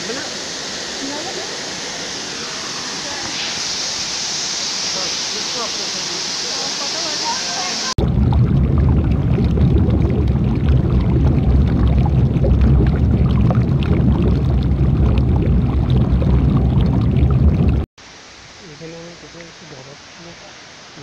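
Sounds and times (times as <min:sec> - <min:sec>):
waterfall crashing into pool: 0:00.0 - 0:08.0.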